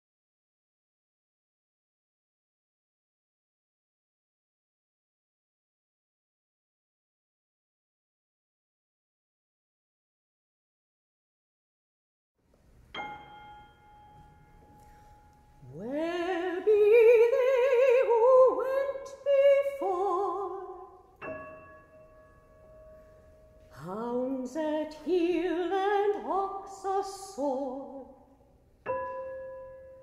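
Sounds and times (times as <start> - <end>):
piano note ringing: 12.9 - 16.5, 21.2 - 23.9, 28.8 - 30.0
woman singing with vibrato: 15.6 - 21.1, 23.7 - 28.3.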